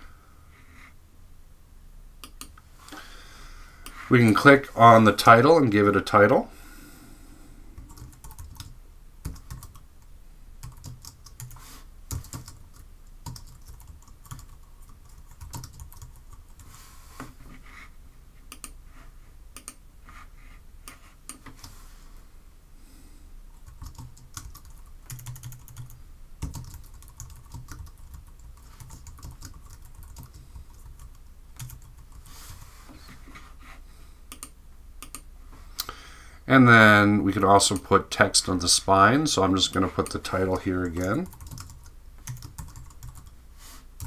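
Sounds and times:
typing on a keyboard: 7.8s - 8.7s, 9.3s - 9.8s, 10.6s - 16.4s, 23.7s - 32.2s, 40.9s - 43.3s.

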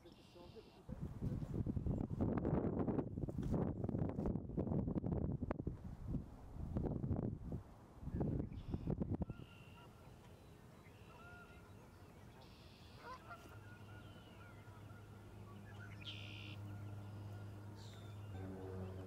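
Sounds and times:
distant wetland bird calls: 0.0s - 0.9s, 8.3s - 19.0s
low steady hum: 4.0s - 19.0s.

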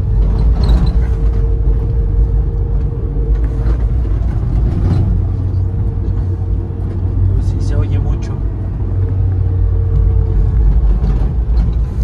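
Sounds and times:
van engine and road rumble: 0.0s - 12.0s.

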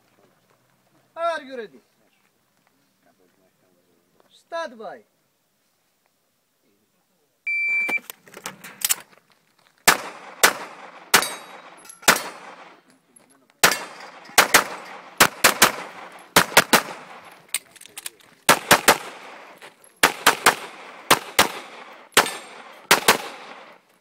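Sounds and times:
shot timer beep: 7.5s - 8.0s
handgun shots: 9.9s - 12.8s, 13.6s - 17.3s, 18.5s - 19.4s, 20.0s - 23.7s.

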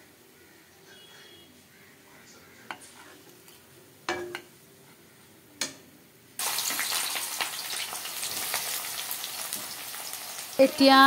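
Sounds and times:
onions frying in hot oil: 6.4s - 11.0s.

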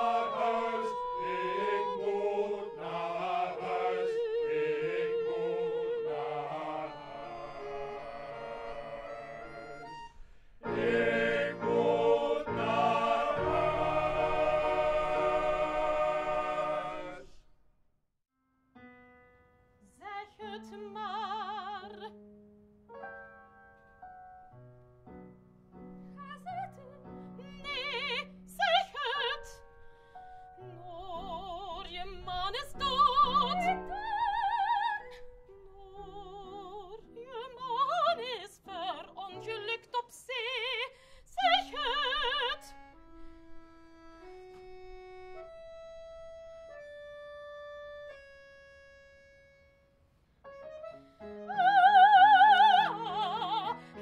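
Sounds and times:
woman singing operatically: 0.0s - 6.6s, 20.0s - 22.1s, 26.2s - 29.6s, 30.8s - 42.7s, 51.5s - 54.0s
men's choir chord: 0.0s - 10.0s, 10.6s - 17.4s
instrumental accompaniment: 0.0s - 17.2s, 42.1s - 54.0s.

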